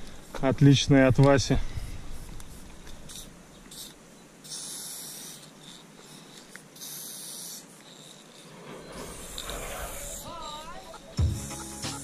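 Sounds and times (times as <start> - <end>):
spray paint can hissing: 2.2 - 8.5.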